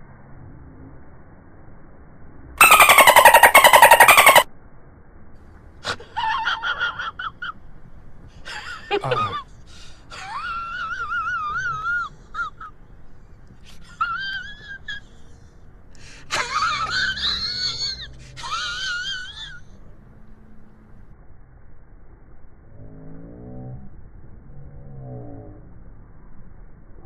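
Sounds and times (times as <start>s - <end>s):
children squealing: 2.6s - 4.5s, 16.8s - 19.6s.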